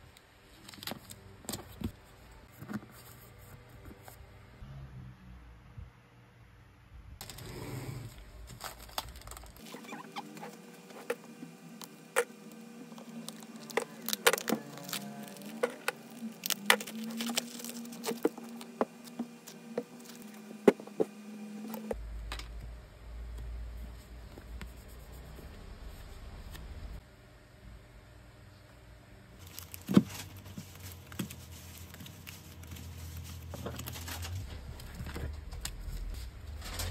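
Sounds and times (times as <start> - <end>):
plastic bag crinkling: 7.2 - 10.1, 13.0 - 20.4, 29.4 - 36.8.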